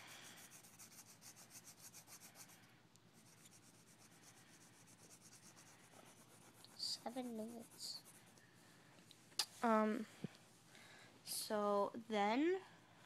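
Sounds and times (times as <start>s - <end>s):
pencil scratching on paper: 0.0s - 2.6s, 3.2s - 8.4s.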